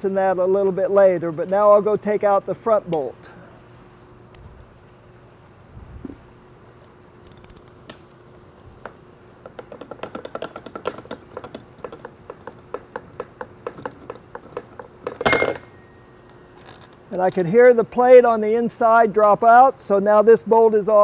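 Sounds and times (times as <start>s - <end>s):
ratchet wrench clicking: 9.4s - 15.7s.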